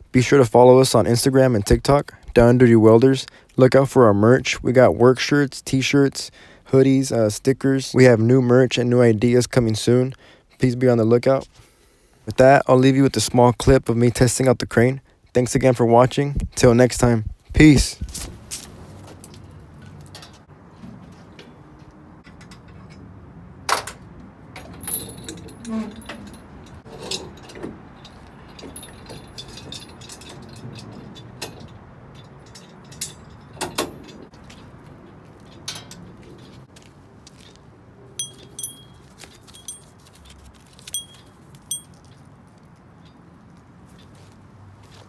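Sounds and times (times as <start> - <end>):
metal chain clinking and rattling: 24.6 - 36.6, 38.2 - 42.3
steel hooks clanking: 24.6 - 36.6, 38.2 - 40.0, 40.9 - 42.2.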